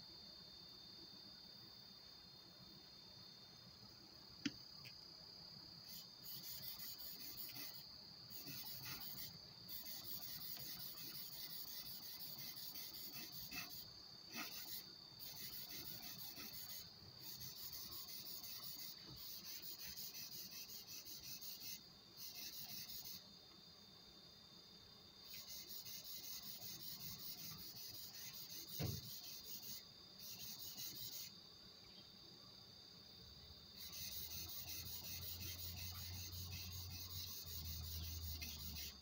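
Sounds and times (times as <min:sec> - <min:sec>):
chisel scraping on whetstone: 0:10.0 - 0:14.8, 0:15.4 - 0:16.8.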